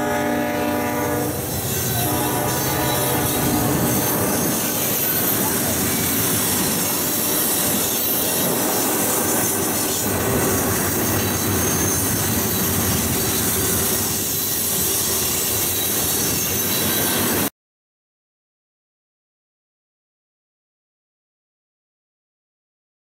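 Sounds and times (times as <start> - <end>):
train wheels rumbling on rails: 0.0 - 17.5
faint high wheel squeal: 1.0 - 17.5.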